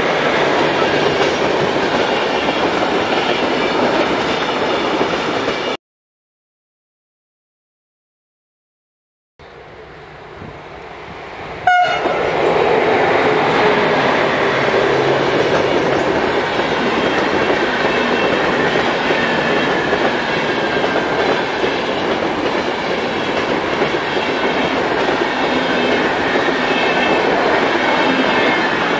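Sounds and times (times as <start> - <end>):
train horn blast: 11.6 - 12.3
train wheels clattering over rails: 12.0 - 28.9.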